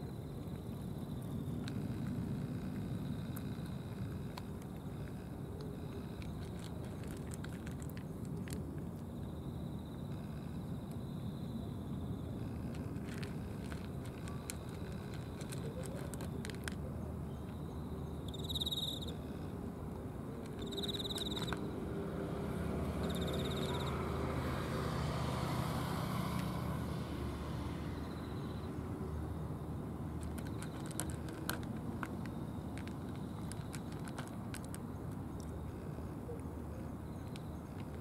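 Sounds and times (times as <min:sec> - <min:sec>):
low hum of traffic: 0:00.0 - 0:38.0
cats crunching dry food: 0:00.4 - 0:09.1, 0:12.4 - 0:16.9, 0:20.3 - 0:22.0, 0:30.1 - 0:38.0
vehicle passing: 0:21.0 - 0:29.3.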